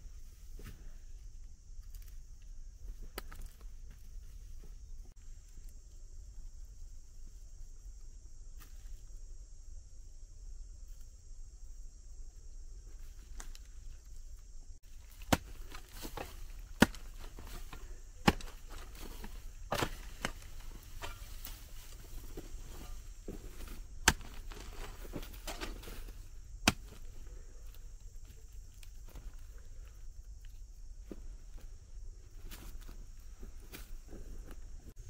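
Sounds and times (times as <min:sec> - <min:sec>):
sharp chopping strikes: 0:15.2 - 0:17.2, 0:18.2 - 0:18.6, 0:19.7 - 0:20.4, 0:24.0 - 0:24.4, 0:26.6 - 0:27.0.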